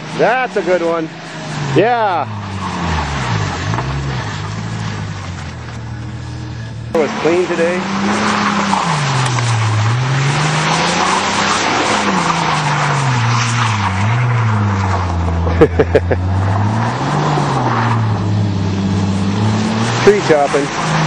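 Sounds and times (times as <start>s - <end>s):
car engine revving: 0.0s - 21.0s
wheels churning through mud: 7.0s - 18.0s.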